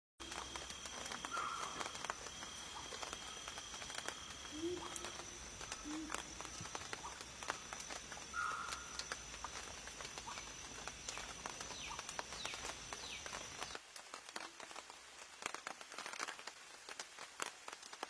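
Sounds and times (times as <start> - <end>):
low hum: 0.2 - 13.7
sharp ticks: 0.2 - 13.7.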